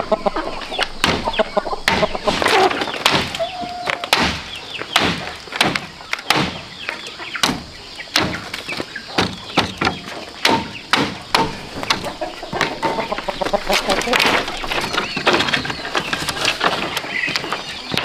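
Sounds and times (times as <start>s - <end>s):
chickens clucking: 0.0s - 18.0s
sharp knocks on bamboo: 1.0s - 1.3s, 1.9s - 2.2s, 3.0s - 3.4s, 4.0s - 6.6s, 7.4s - 8.4s, 9.2s - 12.8s.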